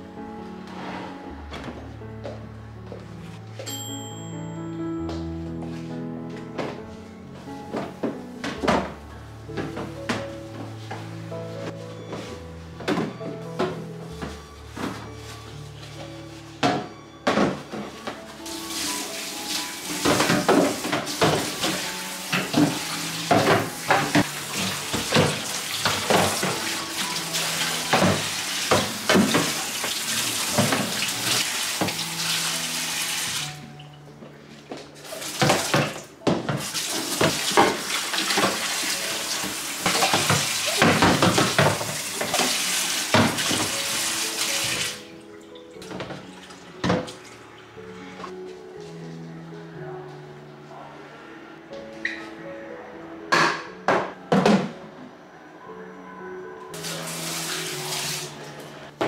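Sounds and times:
soft background music: 0:00.0 - 0:59.0
tap water splashing: 0:18.6 - 0:33.6, 0:35.2 - 0:45.0, 0:45.8 - 0:47.2.

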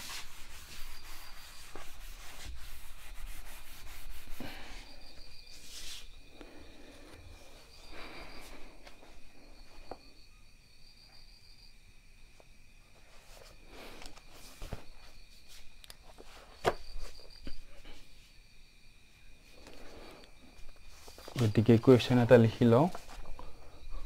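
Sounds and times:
high-pitched insect trilling: 0:00.0 - 0:06.8.

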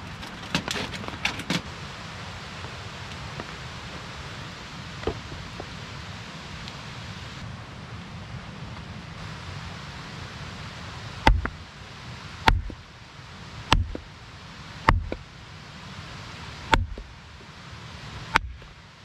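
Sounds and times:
steady hiss: 0:00.0 - 0:19.0
hatchet chopping into wood: 0:11.3 - 0:11.6, 0:12.5 - 0:12.8, 0:13.7 - 0:14.1, 0:14.8 - 0:15.2, 0:16.7 - 0:17.1, 0:18.3 - 0:18.7.

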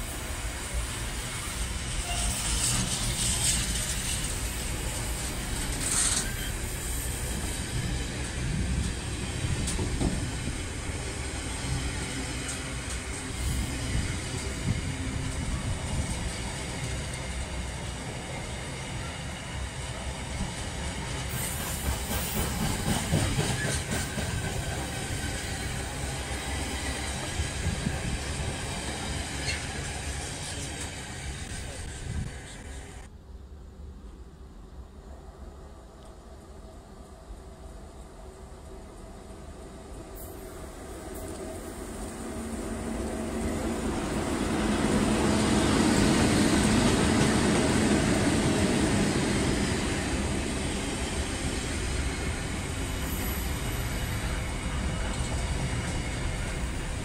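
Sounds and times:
train wheels rumbling on rail: 0:00.0 - 0:33.2, 0:34.0 - 0:57.0
high hiss and rattle: 0:02.3 - 0:09.0.

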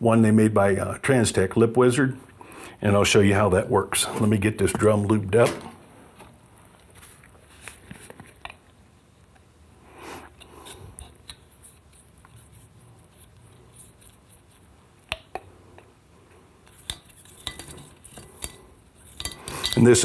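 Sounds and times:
soft brushing: 0:10.6 - 0:14.8.

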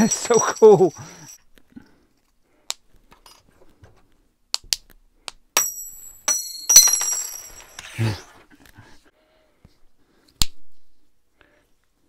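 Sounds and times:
metallic ringing clink: 0:00.0 - 0:01.4, 0:05.6 - 0:07.8.

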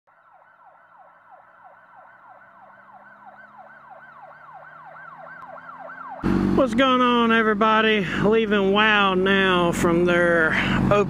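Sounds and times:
siren yelping: 0:00.1 - 0:07.4.

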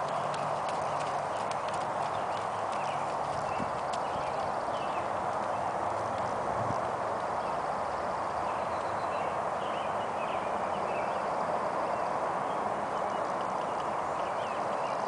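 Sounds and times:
horse hoofbeats on dirt: 0:00.0 - 0:07.5.

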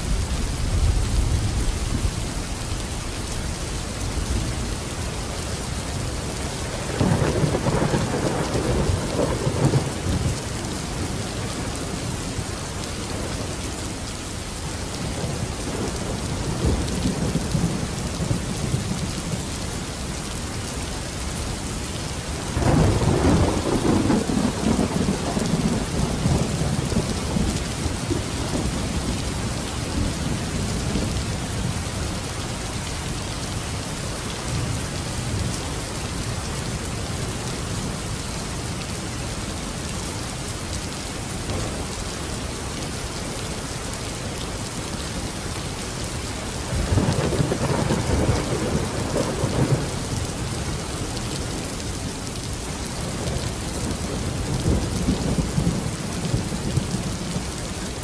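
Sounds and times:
steady rain: 0:00.0 - 0:58.0.

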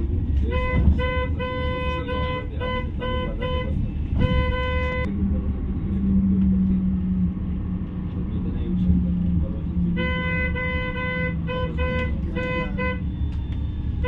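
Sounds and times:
bus engine and road rumble: 0:00.0 - 0:14.0
vehicle horn beeping: 0:00.4 - 0:05.1, 0:10.0 - 0:13.2.

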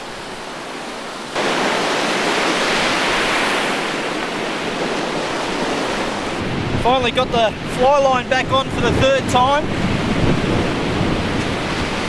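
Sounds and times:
ocean surf rushing: 0:00.0 - 0:12.0.

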